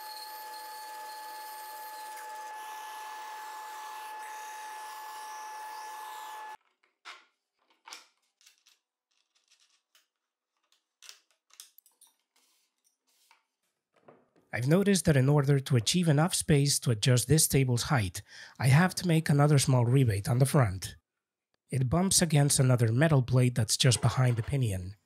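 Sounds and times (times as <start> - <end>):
bandsaw cutting plywood: 0.0 - 6.6
disc sander whining: 0.0 - 6.6.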